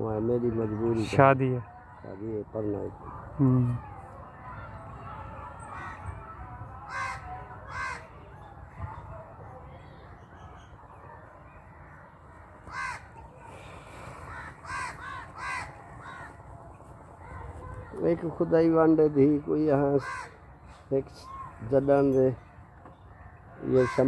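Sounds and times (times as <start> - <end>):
crows cawing: 4.5 - 8.4, 11.6 - 16.5, 17.2 - 24.0.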